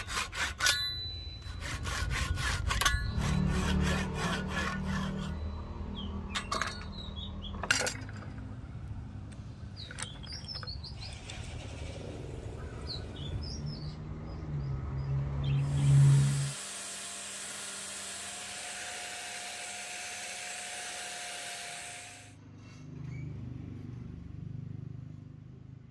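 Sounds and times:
hand saw cutting wood: 0.0 - 5.4, 15.6 - 22.3
birds chirping: 5.4 - 7.8, 9.4 - 16.1.

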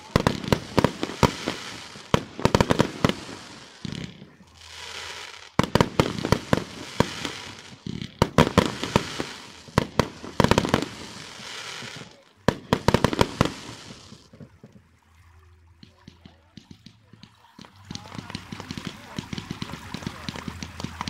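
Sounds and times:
firework hiss: 0.0 - 14.3.

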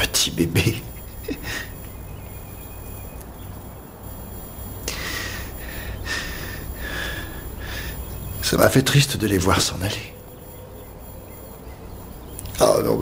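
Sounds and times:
man breathing in heavily: 4.8 - 8.2.

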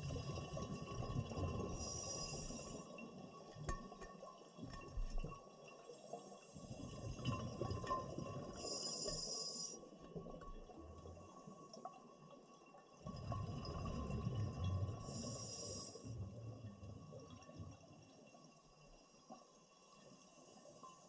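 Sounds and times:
exhaled air bubbling underwater: 0.0 - 21.0.

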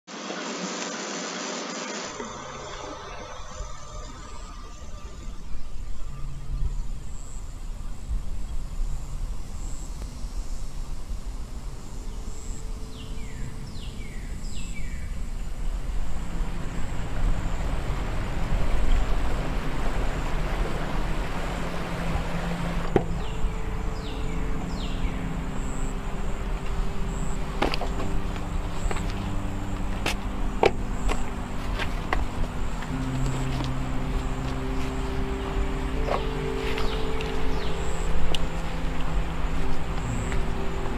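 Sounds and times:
low steady drone: 2.0 - 40.9
creek water rushing over rocks: 15.2 - 40.9
footsteps crunching on gravel: 27.4 - 38.7.

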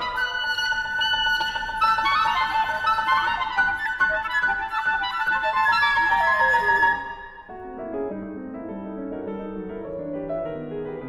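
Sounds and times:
clarinet run: 0.0 - 7.6
flute: 0.0 - 7.8
piano: 0.0 - 11.0.

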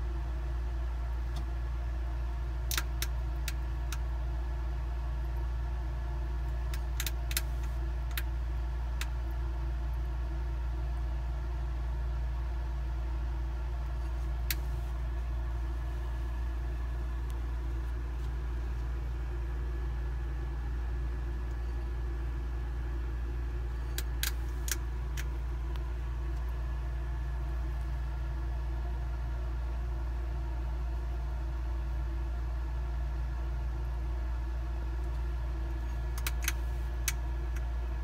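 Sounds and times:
low electrical hum: 0.0 - 38.0.

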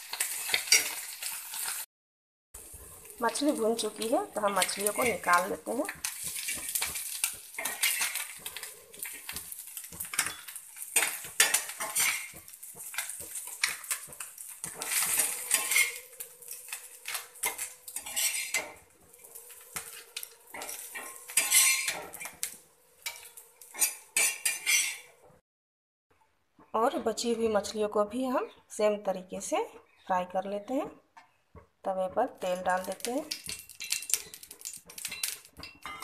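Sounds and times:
spatula scraping on griddle: 0.1 - 1.8, 2.7 - 25.3
metallic clatters in steel bowl: 6.0 - 18.8, 19.7 - 22.4, 32.9 - 36.0.

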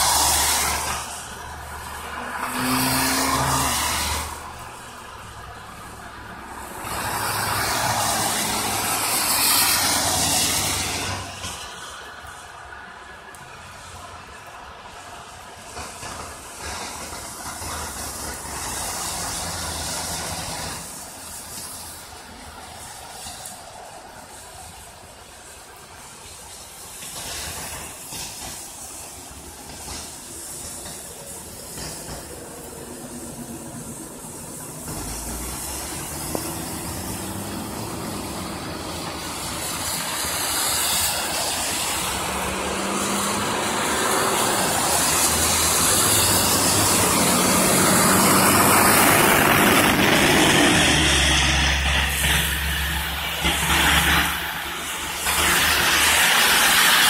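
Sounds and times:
truck diesel engine under load: 0.0 - 12.2, 15.7 - 24.3, 26.4 - 57.0
tyres hissing on wet road: 0.0 - 57.0.

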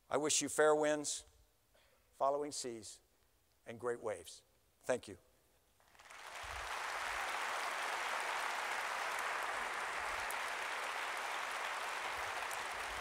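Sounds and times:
large audience applauding: 5.9 - 13.0.

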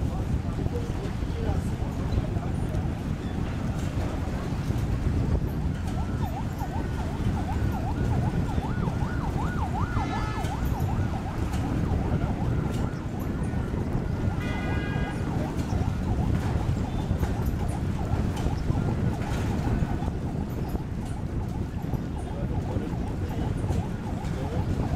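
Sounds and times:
vehicle siren yelping: 3.9 - 24.9
vehicle horn: 14.4 - 15.3.

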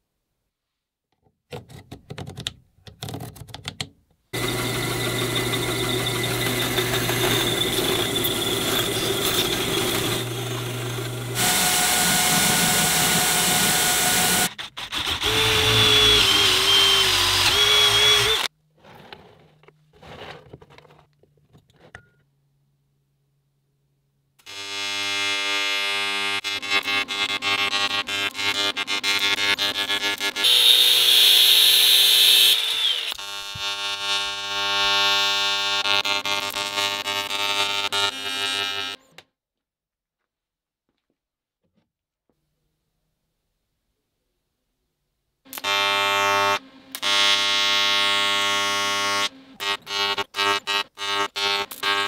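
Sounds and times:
cordless drill boring through metal: 4.4 - 18.5, 24.4 - 39.0, 45.5 - 52.0
loud machine running: 4.4 - 18.5.

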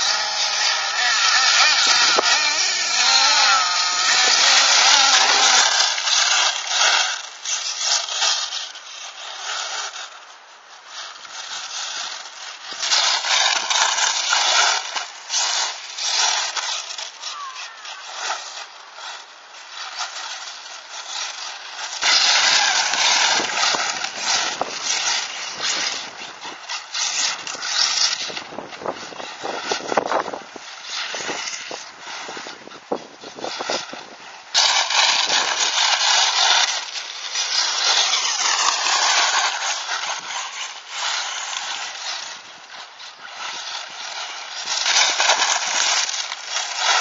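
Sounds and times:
electric motors whining: 0.0 - 7.8
tyres scraping over loose dirt: 0.0 - 47.0.

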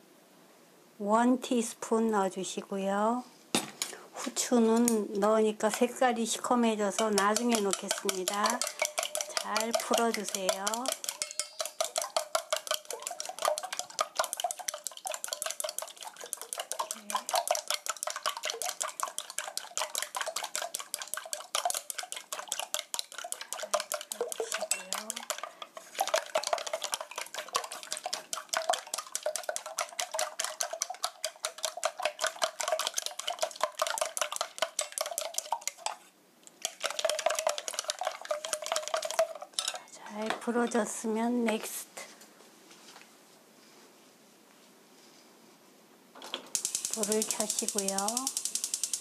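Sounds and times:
chopsticks beating eggs in steel bowl: 3.8 - 41.8, 46.5 - 49.0
bowl ringing: 11.2 - 11.8.

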